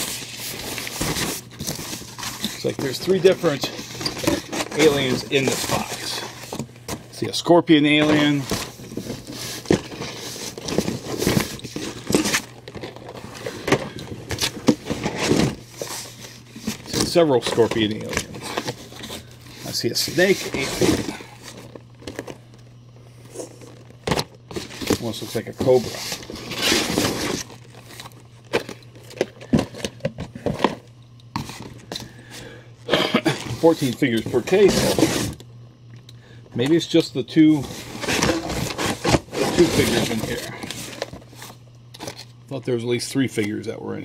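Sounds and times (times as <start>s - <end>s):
plastic packaging crinkling: 0.0s - 7.2s, 7.8s - 32.2s
steady low hum: 0.0s - 44.0s.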